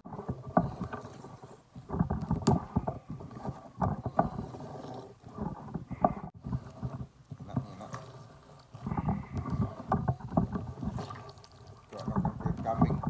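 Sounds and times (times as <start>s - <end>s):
hands squeezing wet eggplant: 7.3s - 13.0s.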